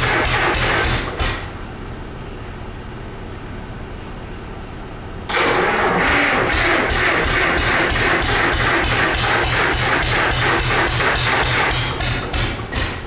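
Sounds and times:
two-stroke diesel engine: 0:00.0 - 0:01.5, 0:05.3 - 0:13.0.

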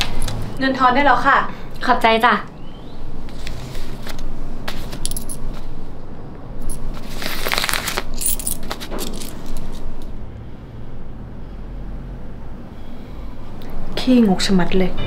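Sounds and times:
coins clinking: 0:04.8 - 0:05.6, 0:06.6 - 0:10.1
coins scraping on paper: 0:06.7 - 0:09.3.

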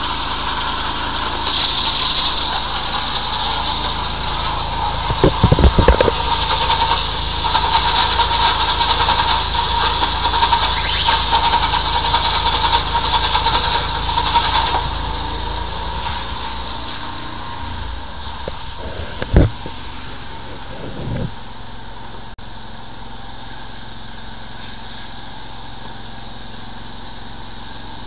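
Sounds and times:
steady machine hum: 0:00.0 - 0:28.0
water jetting hiss in drain pipe: 0:00.0 - 0:28.0.

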